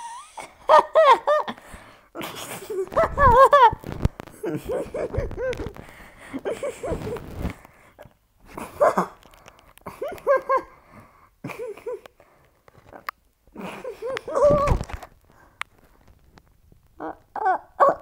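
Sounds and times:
dog barking and whining: 17.4 - 18.0.

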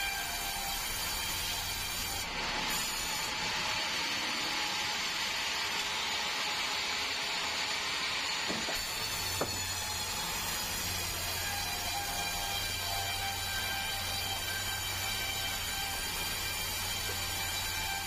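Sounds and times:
band saw cutting log: 8.5 - 18.0.

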